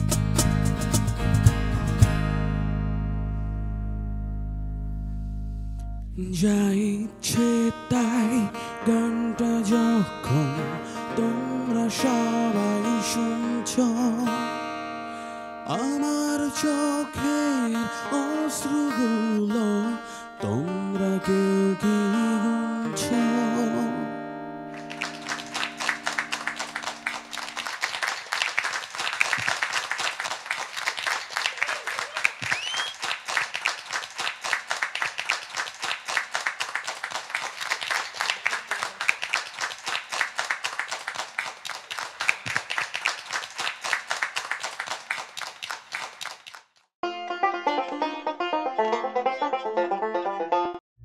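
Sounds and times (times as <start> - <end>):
applause: 24.8 - 46.9.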